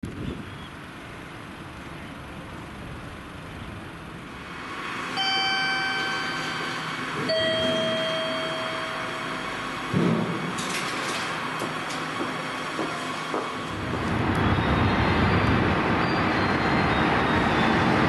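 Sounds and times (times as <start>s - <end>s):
two-note electronic chime: 5.2s - 9.6s
platform noise: 5.2s - 10.4s.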